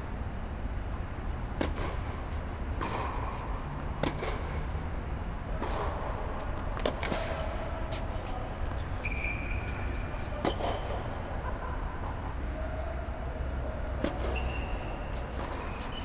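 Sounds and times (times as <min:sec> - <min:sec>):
steady low hum: 0:00.0 - 0:16.0
rackets striking tennis ball: 0:01.5 - 0:11.3, 0:13.7 - 0:16.0
ball bouncing on hard court: 0:01.6 - 0:02.1, 0:02.8 - 0:04.7, 0:08.7 - 0:11.1.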